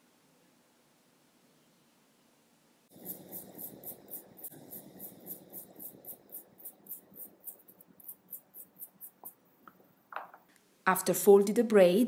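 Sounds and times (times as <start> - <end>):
brush scrubbing cable: 2.9 - 9.4.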